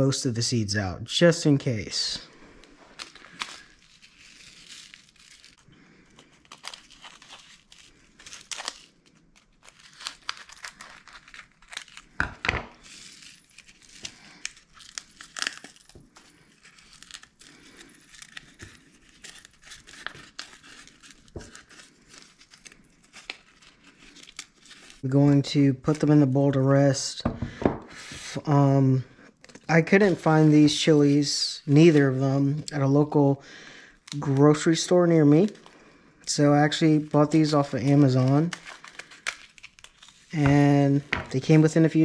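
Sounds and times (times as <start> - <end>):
dried chilies crackling and tearing: 2.9 - 25.1, 34.0 - 41.8.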